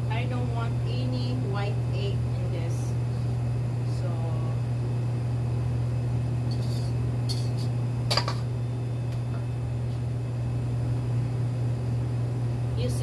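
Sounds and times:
kitchen appliance humming: 0.0s - 13.0s
kitchen utensils clinking: 6.5s - 8.5s.

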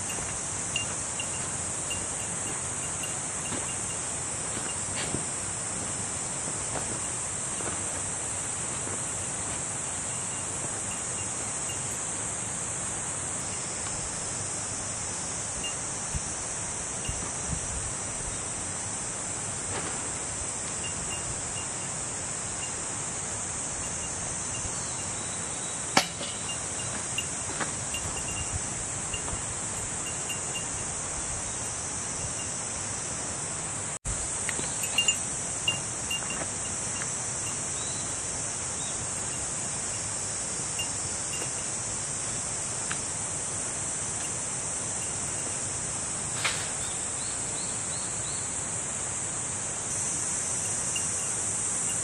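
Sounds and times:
small bell tinkling: 0.0s - 4.1s, 10.0s - 12.1s, 15.6s - 15.8s, 17.0s - 17.2s, 20.8s - 21.8s, 26.2s - 30.9s, 34.7s - 36.8s, 40.8s - 41.8s, 45.0s - 45.7s, 50.6s - 52.0s
insects chorus: 0.0s - 52.0s.

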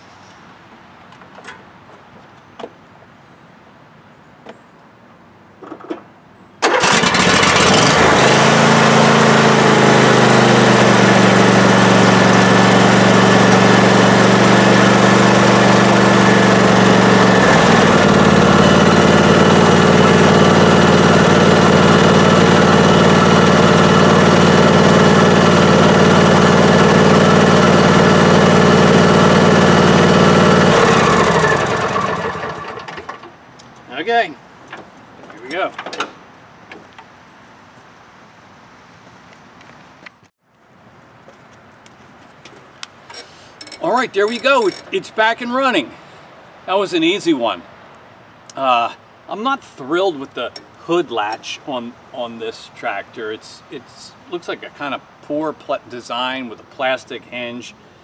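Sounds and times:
lawn tractor engine running: 6.6s - 33.4s.

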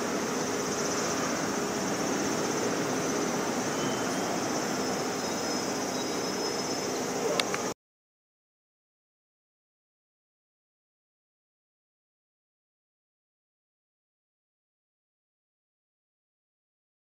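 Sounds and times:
high hiss: 0.0s - 7.8s
elevator doors sliding shut: 1.2s - 7.5s.

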